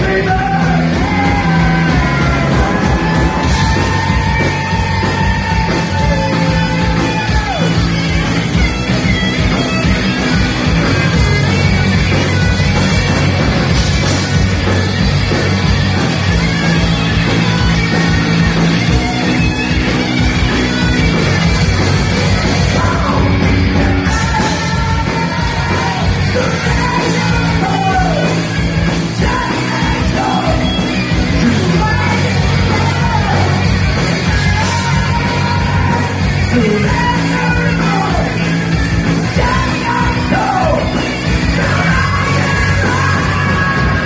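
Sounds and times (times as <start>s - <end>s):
vocalist singing and yelling: 0.0s - 8.0s, 22.3s - 44.0s
rock band playing: 0.0s - 44.0s.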